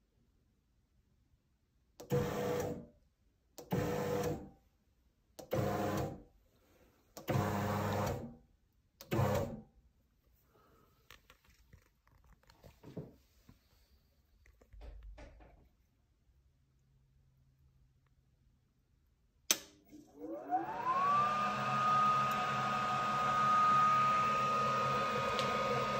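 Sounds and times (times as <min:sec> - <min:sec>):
mixer motor whine: 0:07.3 - 0:08.3, 0:19.9 - 0:25.9.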